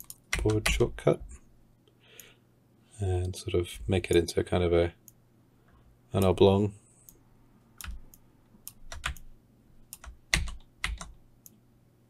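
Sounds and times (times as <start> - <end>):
keyboard keys clicking: 8.7 - 9.3, 9.9 - 11.2.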